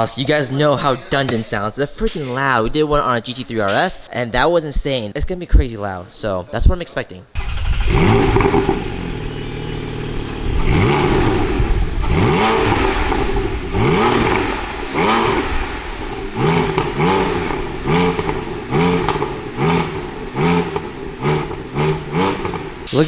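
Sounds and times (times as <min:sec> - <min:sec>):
car engine revving: 0:07.4 - 0:23.0.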